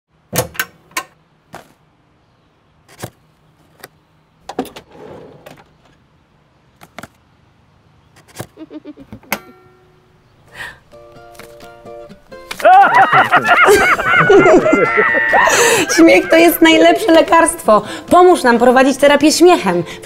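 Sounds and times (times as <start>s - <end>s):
drawer sliding out: 4.5s - 5.9s.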